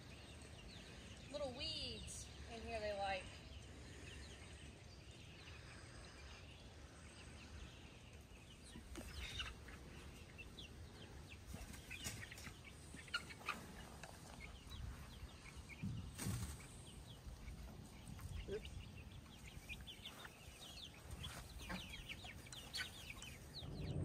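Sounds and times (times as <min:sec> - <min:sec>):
chicks peeping and clucking: 0:00.0 - 0:24.0
low steady rumble: 0:23.3 - 0:24.0.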